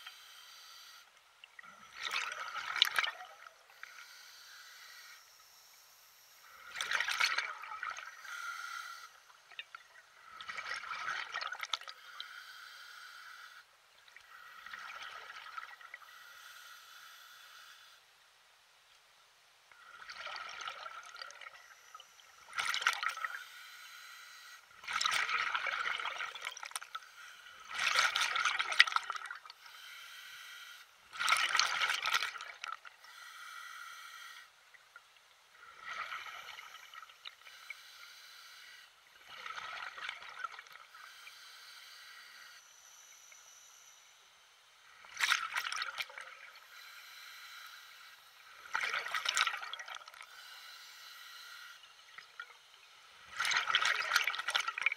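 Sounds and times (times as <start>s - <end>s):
water splashing and lapping: 1.4s - 3.6s, 6.6s - 8.2s, 9.5s - 12.0s, 19.8s - 21.8s, 22.5s - 23.4s, 24.8s - 29.6s, 31.1s - 33.0s, 39.2s - 41.0s, 45.0s - 46.6s, 48.6s - 50.4s, 53.2s - 54.9s.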